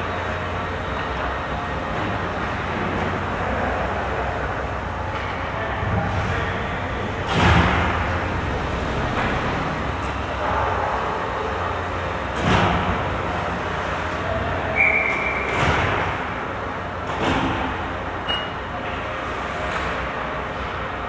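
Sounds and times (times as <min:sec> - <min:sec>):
brief high whistle-like tone: 0:14.7 - 0:15.5.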